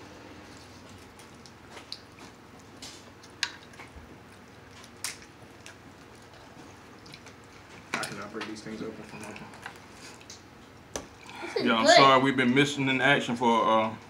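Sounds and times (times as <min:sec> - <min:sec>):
person chewing: 0:00.5 - 0:07.9
crab legs cracking: 0:00.8 - 0:11.0.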